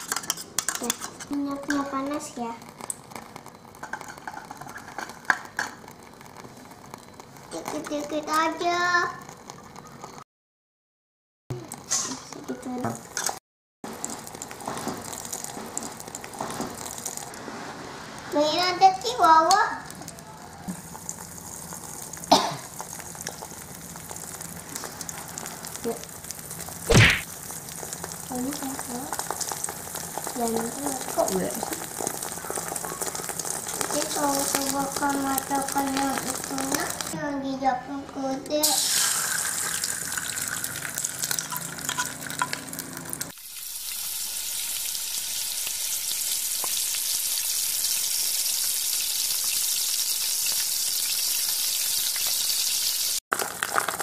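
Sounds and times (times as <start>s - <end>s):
spatula scraping pan: 0.0s - 1.8s
egg sizzling in hot oil: 0.0s - 10.2s, 11.6s - 37.2s, 38.6s - 54.0s.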